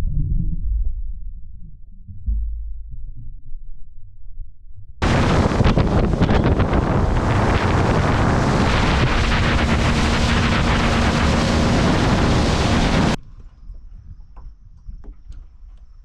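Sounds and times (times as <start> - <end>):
wind buffeting the microphone: 5.0 - 16.0.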